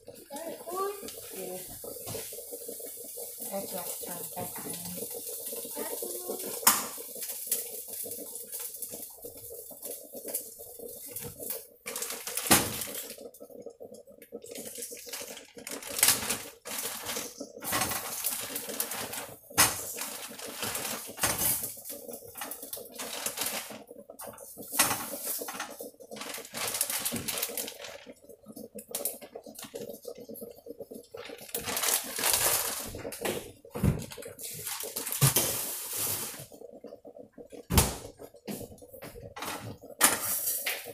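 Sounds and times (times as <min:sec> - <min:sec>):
plastic bag rustling: 0:31.6 - 0:32.9.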